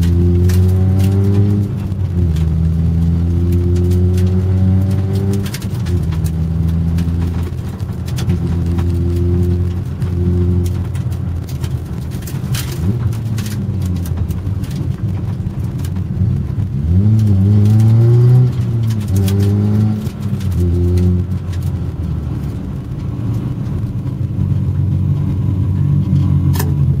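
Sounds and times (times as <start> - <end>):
car engine revving: 0.0 - 27.0.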